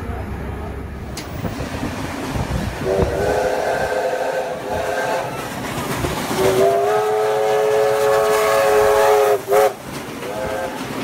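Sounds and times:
passing train noise: 0:00.0 - 0:11.0
steam locomotive whistle: 0:02.8 - 0:05.6, 0:06.3 - 0:10.9.

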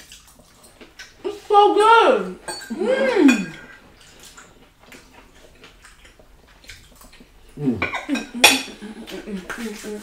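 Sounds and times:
wet chewing: 0:00.0 - 0:01.5, 0:03.4 - 0:08.1.

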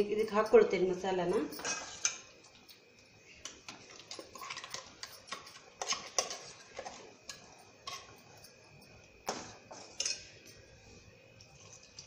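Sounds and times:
steel spoon clinking and scraping: 0:00.0 - 0:00.7, 0:01.4 - 0:09.0, 0:09.9 - 0:10.6.

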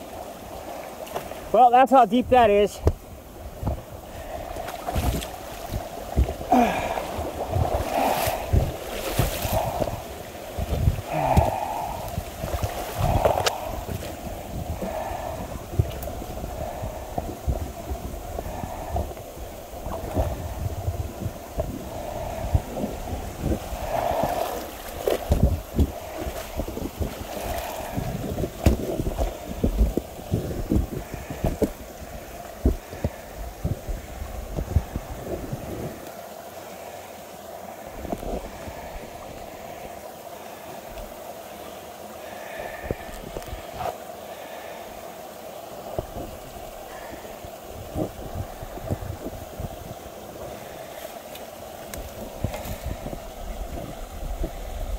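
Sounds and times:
wind rumble on microphone: 0:02.3 - 0:36.1, 0:37.9 - 0:39.9, 0:42.7 - 0:43.9, 0:45.8 - 0:50.8, 0:51.8 - 0:54.9
footsteps splashing through water: 0:04.6 - 0:10.0.

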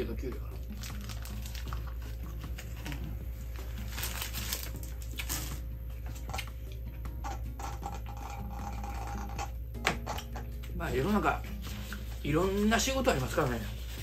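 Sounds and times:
paper wrapper crinkling: 0:00.6 - 0:05.6.

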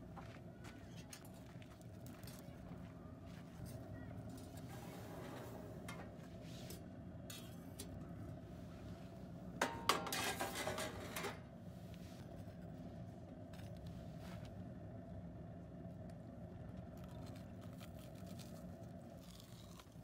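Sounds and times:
metal oven rack scraping: 0:04.4 - 0:07.7, 0:09.6 - 0:11.4.

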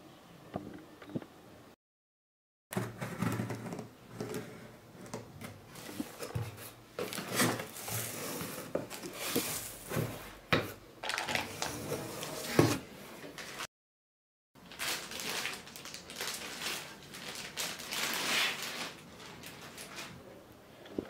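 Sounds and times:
paper and plastic rustling: 0:05.4 - 0:13.7, 0:14.6 - 0:20.3.

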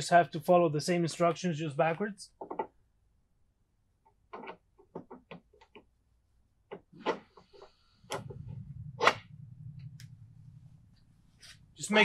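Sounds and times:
low steady hum: 0:06.2 - 0:12.0.

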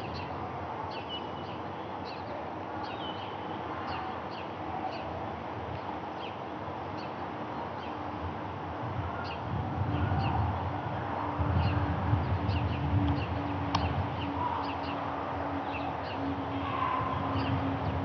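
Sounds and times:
small birds chirping: 0:00.0 - 0:05.1, 0:11.6 - 0:18.0.

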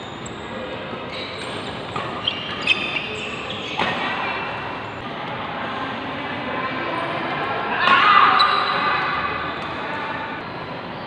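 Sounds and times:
brief high squeaks: 0:01.1 - 0:03.9.

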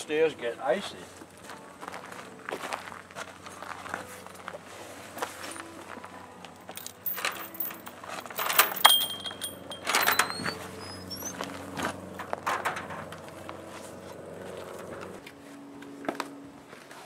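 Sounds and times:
gun case and bag rattling: 0:06.6 - 0:13.4
wooden gate clattering: 0:06.8 - 0:13.4.

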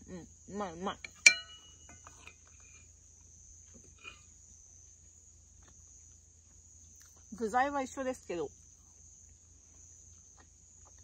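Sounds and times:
crickets chirring: 0:00.0 - 0:11.0
tableware clink: 0:01.2 - 0:02.0.

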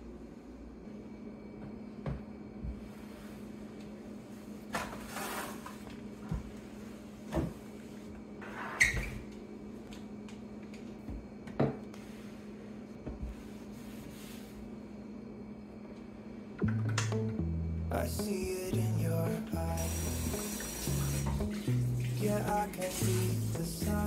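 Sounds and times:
steady low hum: 0:00.0 - 0:24.0
objects knocking on countertop: 0:11.5 - 0:11.8.

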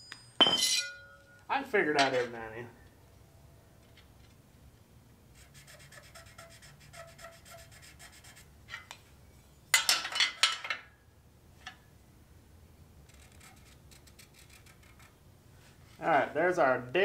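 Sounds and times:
marking tool scratching steel: 0:05.3 - 0:08.9, 0:13.1 - 0:15.2.

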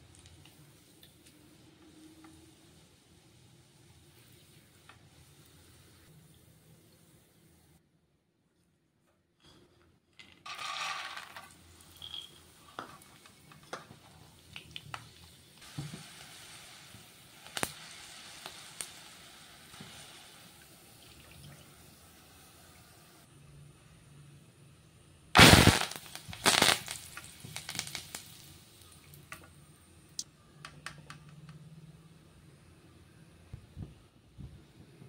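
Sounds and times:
frying hiss: 0:00.0 - 0:07.8, 0:10.5 - 0:24.2, 0:25.3 - 0:30.3
peanuts sizzling in hot oil: 0:10.5 - 0:23.3, 0:25.4 - 0:30.2.

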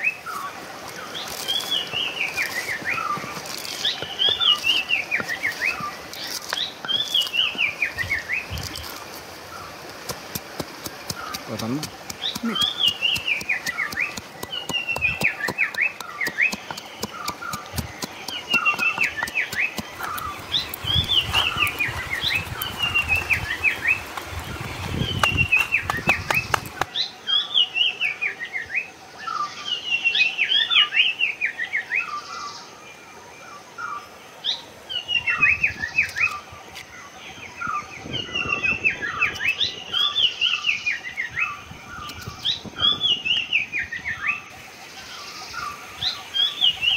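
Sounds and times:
songbird singing: 0:00.0 - 0:46.9
wooden pestle knocking in mortar: 0:10.1 - 0:20.3.

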